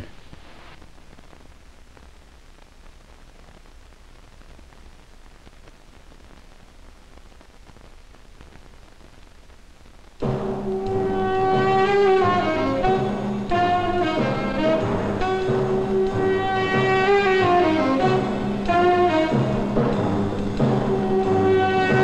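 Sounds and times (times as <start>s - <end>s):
film soundtrack hiss and crackles: 0.0s - 22.0s
brass music: 10.2s - 22.0s.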